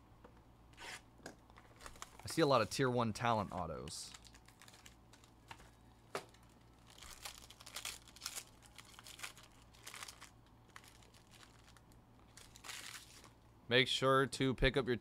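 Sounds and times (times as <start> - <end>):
foil wrapper crinkling and tearing: 1.6 - 13.4.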